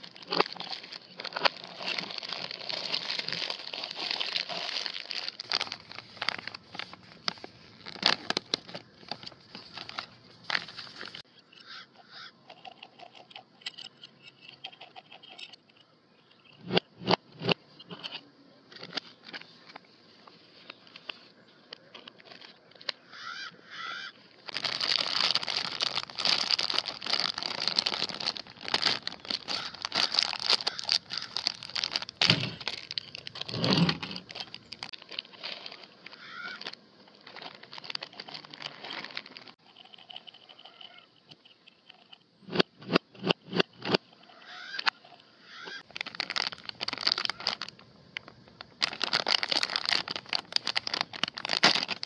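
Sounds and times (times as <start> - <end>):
plastic bag crinkling: 0.0 - 11.2, 24.4 - 40.1, 45.8 - 52.0.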